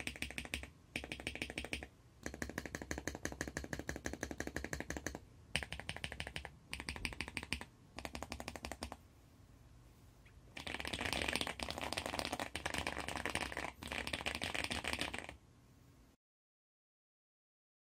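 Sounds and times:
fast mechanical keyboard typing: 0.0s - 9.0s, 10.6s - 15.3s.

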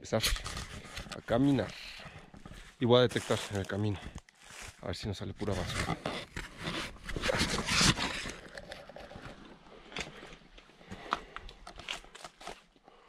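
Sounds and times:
camera handling rustle: 0.2s - 4.8s, 5.4s - 12.7s
footsteps on stones and leaves: 0.3s - 10.2s.

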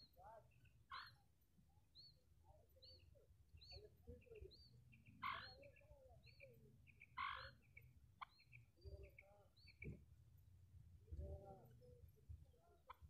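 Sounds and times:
faint high chirps: 0.0s - 10.1s
quail calling: 0.9s - 1.2s, 5.2s - 10.0s.

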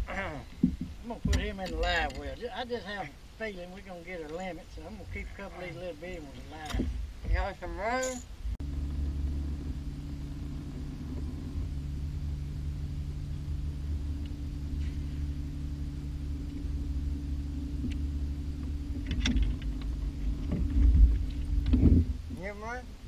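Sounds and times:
electric boat motor humming: 8.6s - 22.2s.

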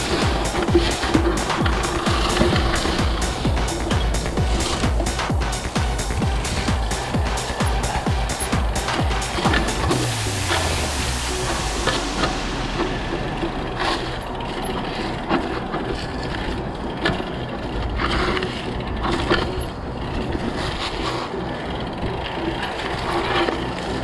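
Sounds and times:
bike rattling and knocking: 0.0s - 24.0s
bike tyres rumbling on rough ground: 0.0s - 24.0s.

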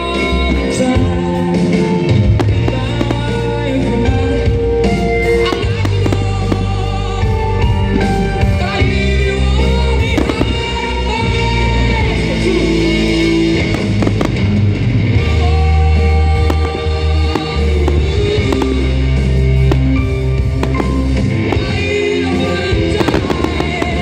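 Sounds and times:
loud music playing: 0.0s - 24.0s
firework bursts banging: 1.8s - 4.3s, 10.1s - 10.8s, 13.0s - 14.7s, 16.4s - 24.0s.

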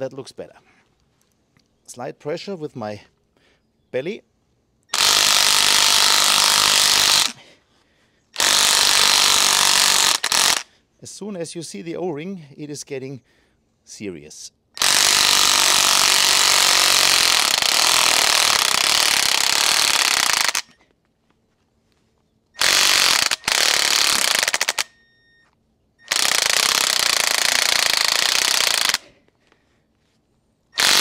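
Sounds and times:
impact wrench hammering: 22.6s - 24.9s.

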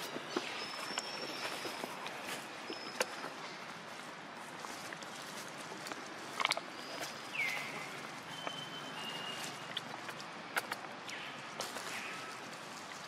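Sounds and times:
rustling in dry leaves: 0.0s - 13.0s
high whistle-like calls: 7.4s - 9.7s.

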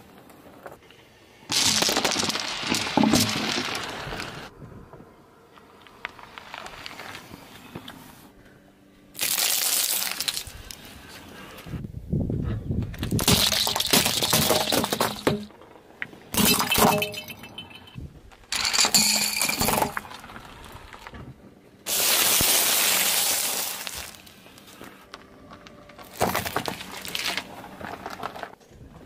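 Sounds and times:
plastic cubes cracking under tyre: 1.5s - 4.3s, 9.2s - 10.8s, 12.9s - 15.5s, 22.9s - 28.6s.

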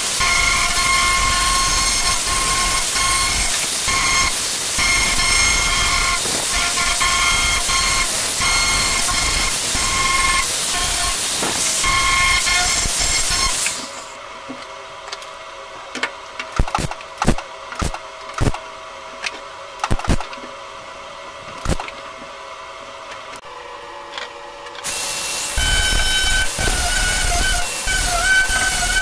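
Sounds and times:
angle grinder grinding steel: 0.0s - 14.2s, 24.8s - 29.0s
tack welding bursts: 0.0s - 14.2s, 24.8s - 29.0s.

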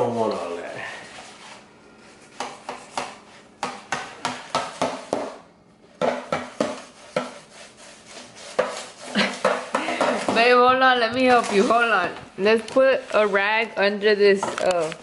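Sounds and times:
knife sawing meat: 6.8s - 9.3s.

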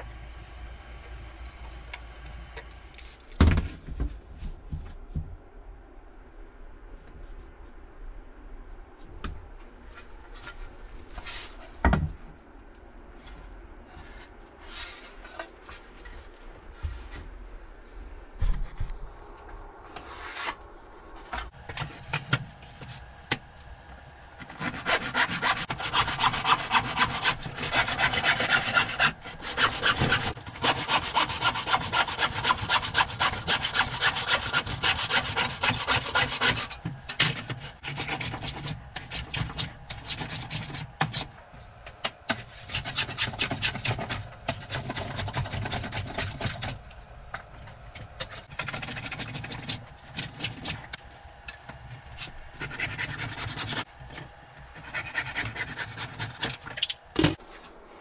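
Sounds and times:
hand saw cutting wood: 24.4s - 41.4s, 42.3s - 46.8s, 48.3s - 51.0s, 52.2s - 56.9s.

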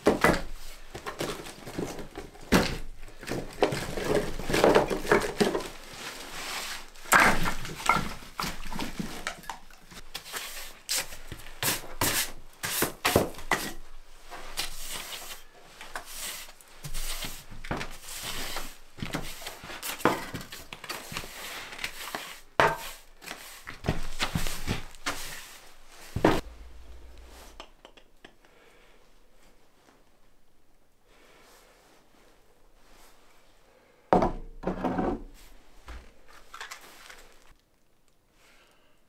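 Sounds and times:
broom sweeping floor: 3.8s - 9.3s, 10.0s - 27.6s, 31.3s - 33.6s.

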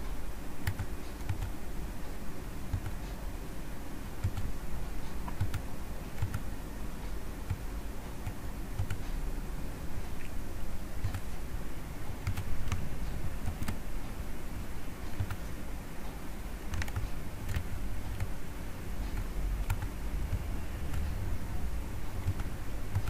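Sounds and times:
low background hum: 0.0s - 23.0s
keyboard and mouse clicks: 0.6s - 1.6s, 2.7s - 3.0s, 4.2s - 4.5s, 5.2s - 6.5s, 7.4s - 9.1s, 11.0s - 11.3s, 12.2s - 13.8s, 15.1s - 15.5s, 16.7s - 18.4s, 19.1s - 21.2s, 22.2s - 23.0s.

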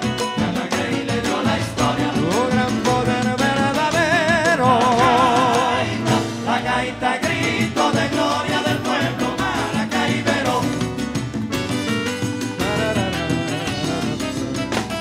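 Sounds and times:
band playing folk music: 0.0s - 15.0s
person singing with vibrato: 0.2s - 10.9s, 12.6s - 15.0s.

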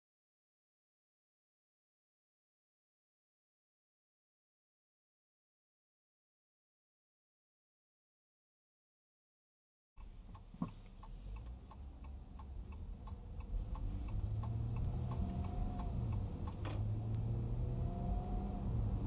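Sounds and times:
car engine and road noise: 10.0s - 19.0s
turn signal clicking: 10.0s - 19.0s.

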